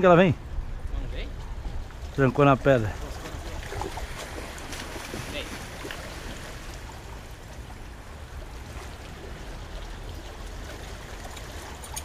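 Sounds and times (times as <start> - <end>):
waves washing over rocks: 2.9 - 12.0.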